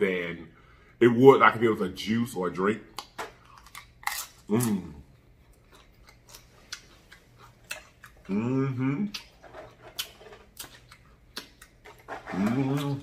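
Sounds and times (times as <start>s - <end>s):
person humming mmm: 4.5s - 5.1s, 8.2s - 9.3s, 12.3s - 13.0s
wet chewing and lip smacks: 5.1s - 8.3s, 9.1s - 12.0s.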